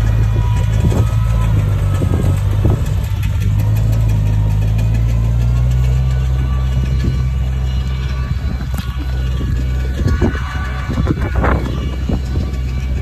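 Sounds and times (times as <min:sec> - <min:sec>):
bulldozer diesel engine running: 0:00.0 - 0:13.0.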